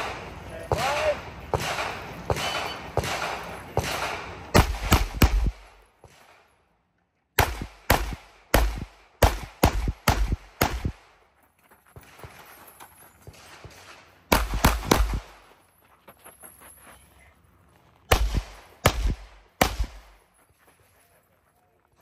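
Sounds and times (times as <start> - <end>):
pistol shots: 0.0 - 6.5, 7.4 - 11.2, 13.3 - 15.4, 18.1 - 20.2.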